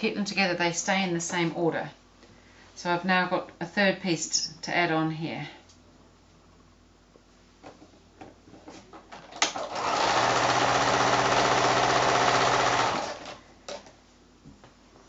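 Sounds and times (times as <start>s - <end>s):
sewing machine stitching: 9.4s - 13.4s.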